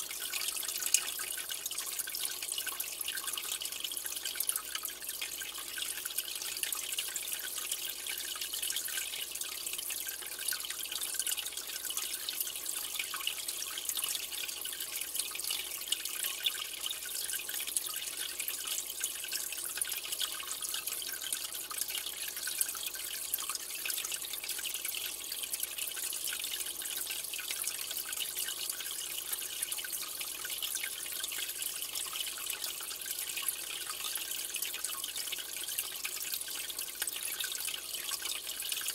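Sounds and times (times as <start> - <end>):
aquarium water trickling: 0.0 - 38.9.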